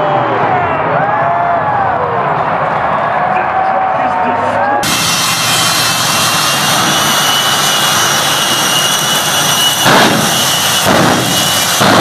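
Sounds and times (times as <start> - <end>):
jet engine roaring with whine: 3.8 - 12.0.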